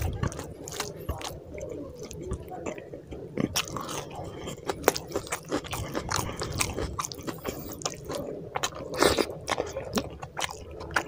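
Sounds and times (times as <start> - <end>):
close chewing with wet smacks: 0.0 - 11.0.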